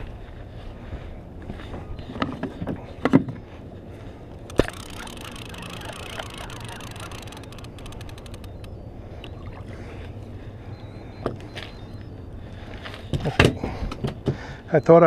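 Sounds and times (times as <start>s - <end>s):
fishing reel clicking: 4.4s - 8.8s.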